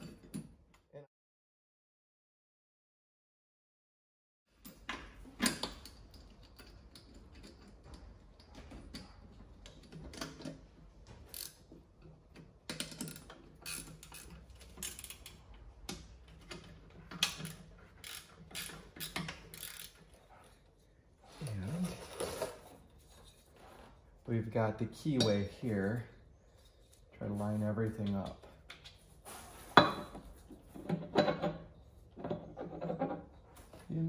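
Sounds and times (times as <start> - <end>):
metallic clicks of bolts and nuts: 4.6 - 10.6, 11.3 - 20.2.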